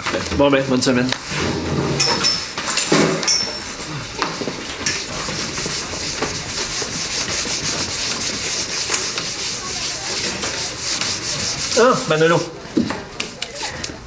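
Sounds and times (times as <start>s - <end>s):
chalk squeaks: 4.7s - 12.5s
chalk scratching on chalkboard: 4.8s - 12.5s.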